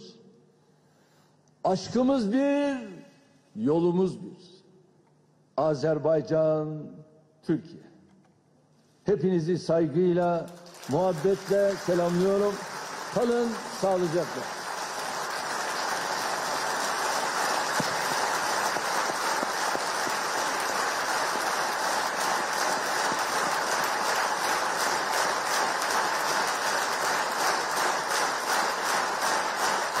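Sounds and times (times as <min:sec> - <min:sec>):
audience applauding: 0:10.5 - 0:30.0.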